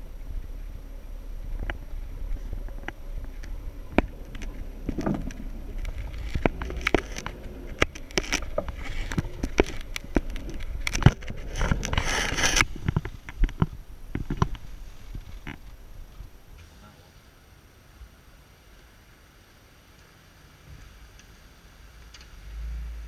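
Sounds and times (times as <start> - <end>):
vehicle knocks and rattles: 0.0 - 16.3
off-road vehicle engine rumble: 0.0 - 23.0.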